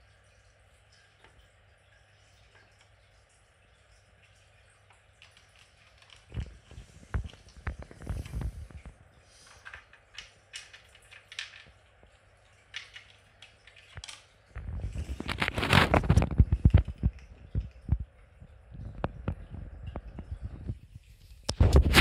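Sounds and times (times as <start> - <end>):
dense plastic clattering and rubbing: 6.0 - 11.6, 14.0 - 18.0, 21.5 - 22.0
plastic feeder clicks and rattles: 9.5 - 11.7, 12.7 - 14.3.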